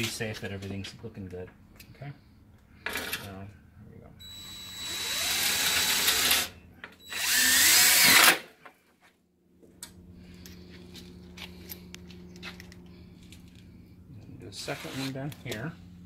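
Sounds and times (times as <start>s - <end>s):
cordless drill driving screws: 4.2s - 8.4s.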